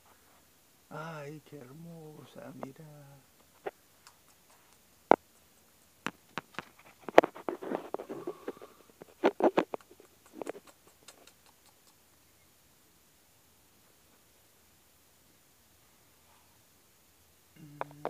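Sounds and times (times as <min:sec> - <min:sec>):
rustling: 0:02.2 - 0:12.0
sharp clicks: 0:03.6 - 0:07.3, 0:09.3 - 0:12.0.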